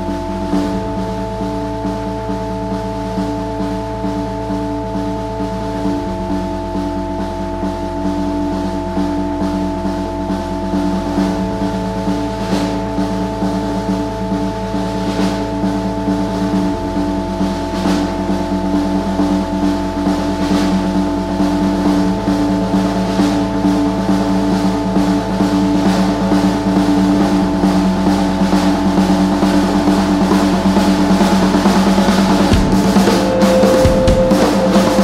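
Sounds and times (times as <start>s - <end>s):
bass line: 0.0s - 35.0s
drum kit snare and bass drum: 0.0s - 35.0s
sustained guitar chord: 27.9s - 35.0s.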